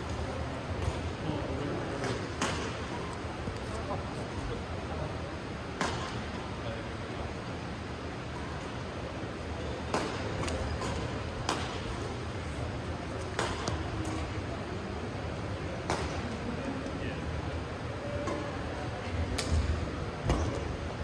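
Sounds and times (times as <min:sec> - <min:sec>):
sports hall noise: 0:00.0 - 0:21.0
rackets smacking shuttlecock: 0:02.0 - 0:03.2, 0:09.8 - 0:12.2, 0:13.1 - 0:14.3, 0:15.8 - 0:16.4.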